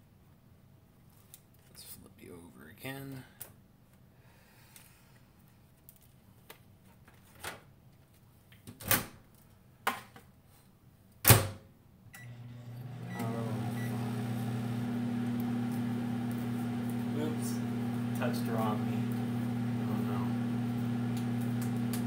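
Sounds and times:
microwave humming: 0:12.1 - 0:22.0.

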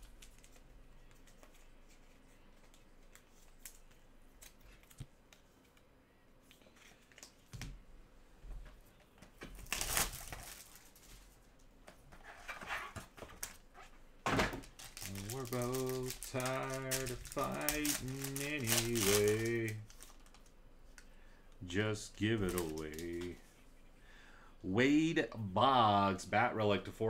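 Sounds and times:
foil wrapper crinkling and tearing: 0:09.6 - 0:11.2, 0:14.6 - 0:20.5, 0:22.2 - 0:23.4.

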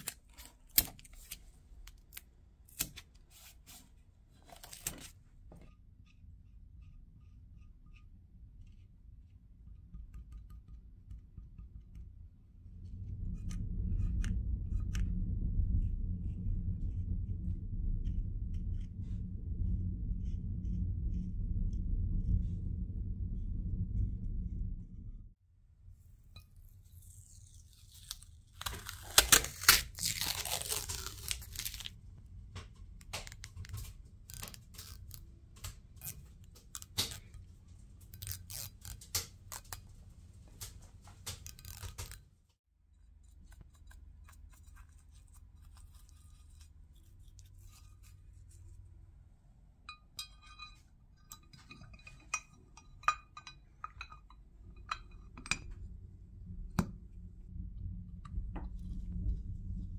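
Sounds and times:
masking tape peeling: 0:26.8 - 0:32.0, 0:33.0 - 0:37.4, 0:38.0 - 0:40.0, 0:40.6 - 0:42.2.

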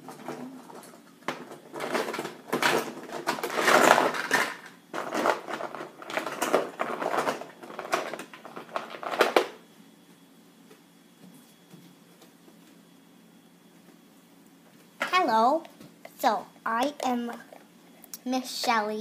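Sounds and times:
plastic toys clattering: 0:00.0 - 0:09.6.

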